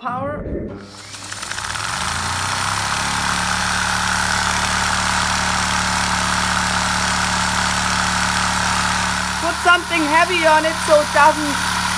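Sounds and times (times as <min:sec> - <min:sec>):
small vacuum engine running: 0:00.9 - 0:11.9.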